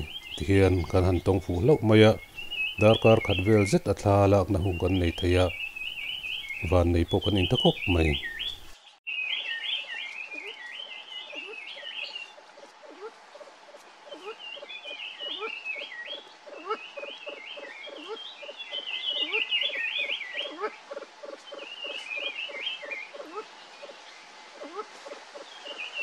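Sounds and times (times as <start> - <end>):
birds twittering: 0.0 - 26.0
pheasants clucking softly: 10.1 - 26.0.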